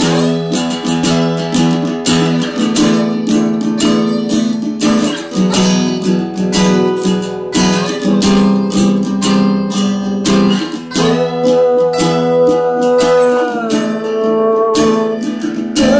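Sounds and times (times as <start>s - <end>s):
acoustic guitars strumming chords: 0.0s - 15.9s.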